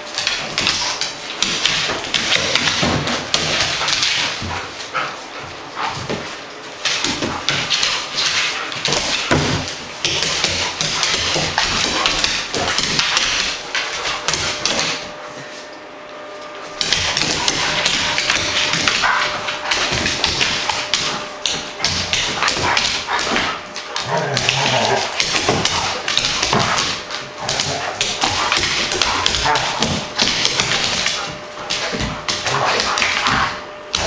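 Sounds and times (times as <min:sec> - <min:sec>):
dog claws scrabbling on wood floor: 0:05.8 - 0:15.1, 0:16.7 - 0:34.0
dogs barking: 0:16.8 - 0:34.0.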